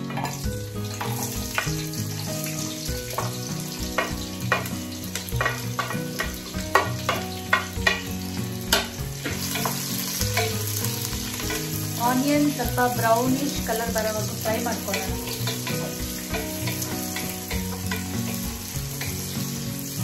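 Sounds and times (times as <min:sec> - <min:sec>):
onions sizzling in oil: 0:00.0 - 0:20.0
spatula knocking on pot: 0:03.0 - 0:11.8, 0:14.8 - 0:19.3.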